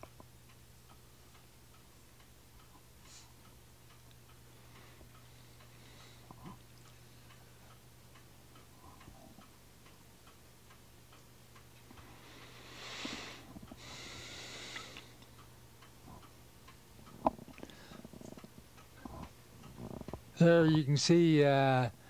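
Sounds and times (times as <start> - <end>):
steady low hum: 0.0 - 22.0
soft hissing: 12.0 - 15.3
faint clicks: 14.6 - 20.8.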